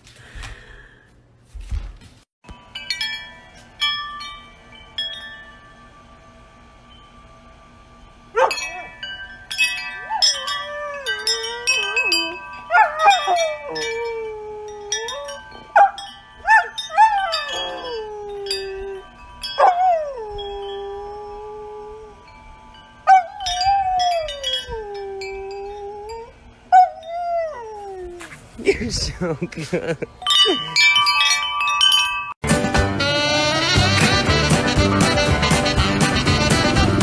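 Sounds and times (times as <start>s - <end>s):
metal wind chimes ringing: 2.5s - 27.4s, 28.7s - 32.4s
dog howling: 9.9s - 22.3s, 23.1s - 28.2s.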